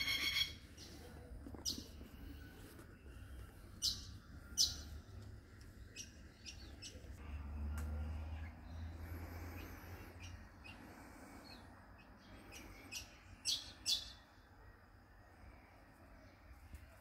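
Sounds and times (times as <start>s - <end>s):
parrots calling: 0.0s - 0.6s.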